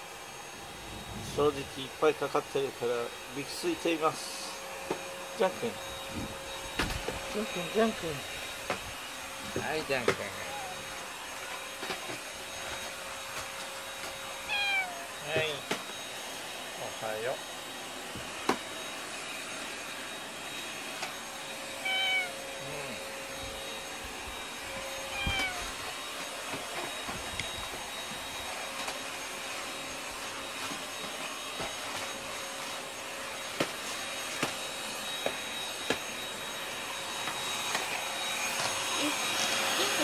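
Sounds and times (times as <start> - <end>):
vacuum cleaner whine: 0.0 - 40.0
cat meowing: 14.4 - 15.2, 21.8 - 22.8, 25.1 - 25.8.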